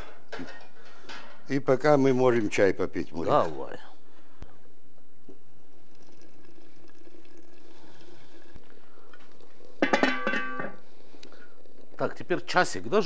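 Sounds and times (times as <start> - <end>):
water boiling: 5.1 - 13.0.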